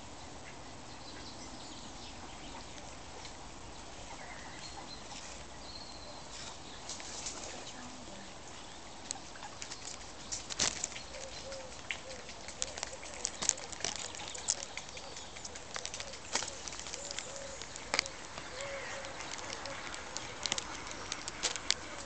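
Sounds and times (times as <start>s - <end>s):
robin singing: 0.8s - 22.0s
sharp clicks: 9.6s - 22.0s.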